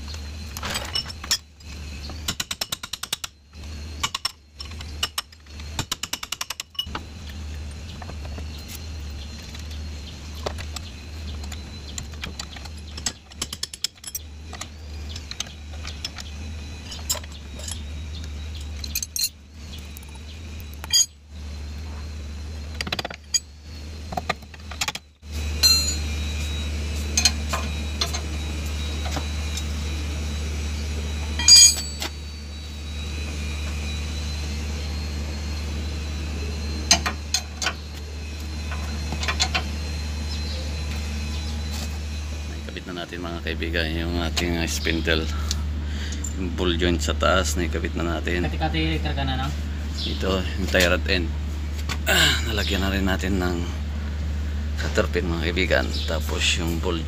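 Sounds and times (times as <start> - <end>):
low hum: 6.6 - 57.0
metallic clinks of tools: 20.8 - 21.2, 25.6 - 26.1, 31.4 - 32.2.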